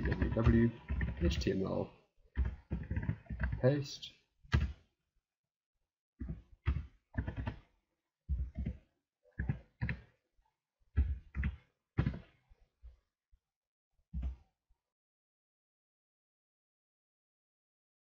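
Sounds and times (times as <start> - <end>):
keyboard typing: 0.0 - 1.6, 6.2 - 7.6.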